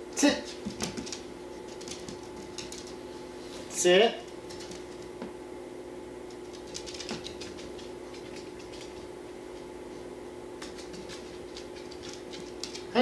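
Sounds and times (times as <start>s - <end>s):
steady low hum: 0.0s - 13.0s
dog claws clicking on wooden floor: 0.5s - 3.0s, 4.3s - 5.1s, 6.4s - 9.1s, 10.6s - 13.0s.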